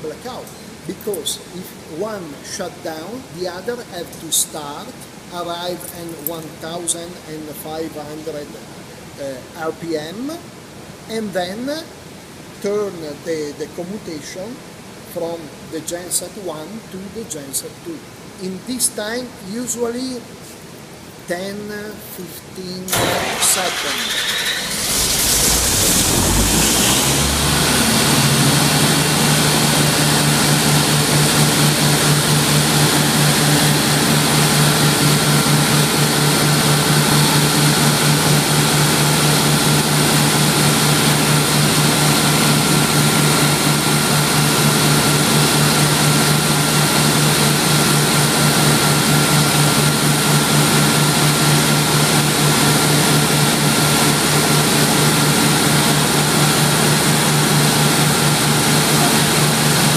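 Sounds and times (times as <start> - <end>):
diesel generator humming: 22.9 - 59.9.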